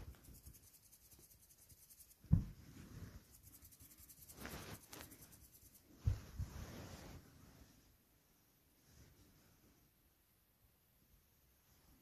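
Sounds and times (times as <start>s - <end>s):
scratchy rubbing and rustling: 0.0s - 7.9s.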